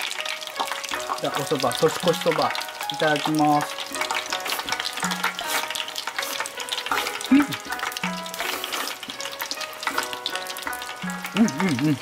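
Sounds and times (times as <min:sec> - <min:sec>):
deep-frying oil crackling: 0:00.0 - 0:12.0
soft background music: 0:00.0 - 0:12.0.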